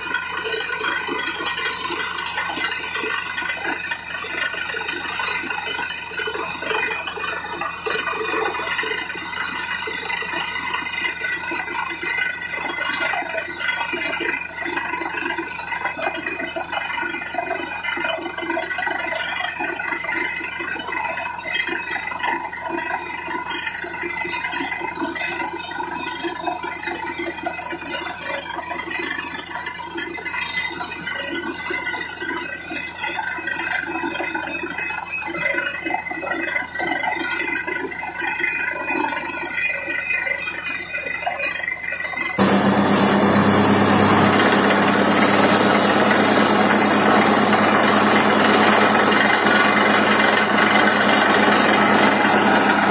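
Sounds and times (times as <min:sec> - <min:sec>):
drilling rig engine whine: 0:00.0 - 0:36.1, 0:41.7 - 0:52.9
water and mud gushing: 0:42.4 - 0:52.9.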